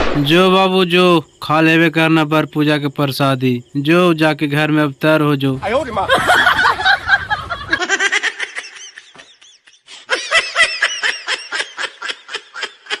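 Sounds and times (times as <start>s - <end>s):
person laughing: 5.8s - 13.0s.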